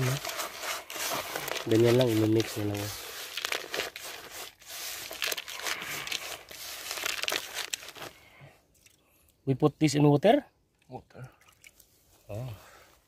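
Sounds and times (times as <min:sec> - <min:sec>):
hands squeezing damp groundbait: 0:00.0 - 0:09.0.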